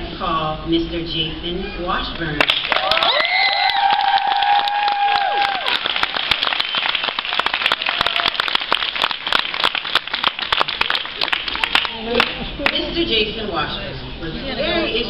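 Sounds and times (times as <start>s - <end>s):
audience applauding: 2.4s - 12.8s.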